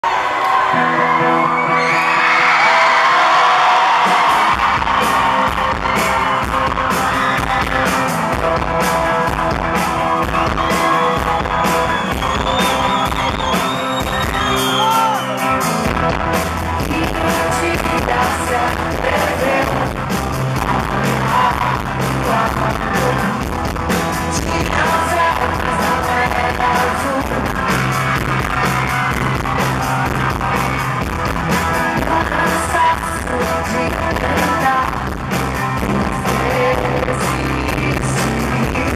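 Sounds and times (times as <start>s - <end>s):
live rock band: 0.1s - 38.9s
woman singing: 16.8s - 20.0s, 20.6s - 23.4s, 24.3s - 27.6s, 31.8s - 38.9s.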